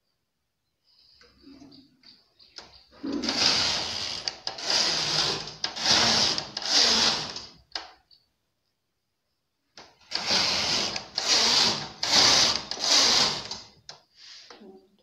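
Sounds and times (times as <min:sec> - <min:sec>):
knitting machine carriage sliding: 0:03.0 - 0:07.6, 0:10.0 - 0:13.8.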